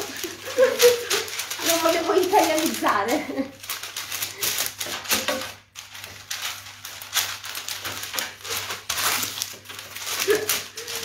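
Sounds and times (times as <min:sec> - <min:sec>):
hands rolling meatball: 0:00.0 - 0:11.0.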